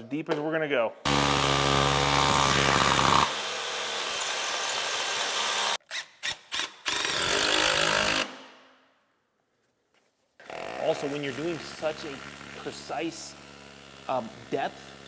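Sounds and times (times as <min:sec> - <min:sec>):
hammer drill boring into concrete: 0:01.1 - 0:08.3, 0:10.4 - 0:15.0.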